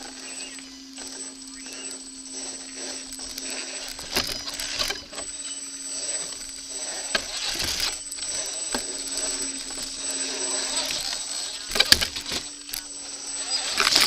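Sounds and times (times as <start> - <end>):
toy car drivetrain whirring: 0.0 - 14.0.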